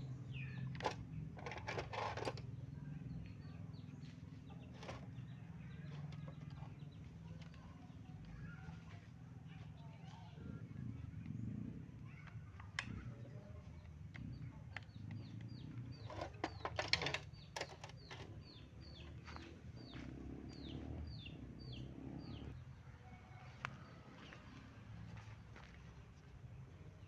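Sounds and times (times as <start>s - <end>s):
bird chirping: 0.0s - 1.5s, 2.4s - 22.7s
metal parts clicking and clinking: 16.1s - 18.3s.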